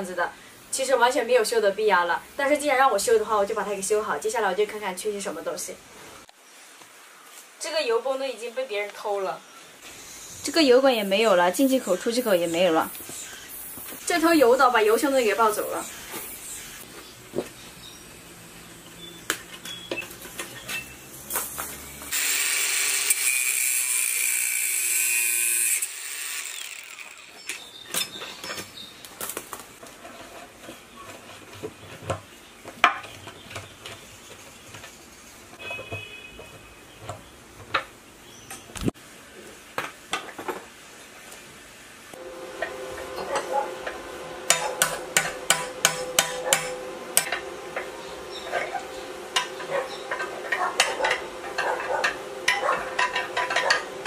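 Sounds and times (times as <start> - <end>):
steady hiss: 0.1 - 23.1
hammer striking steel rod: 44.5 - 47.9.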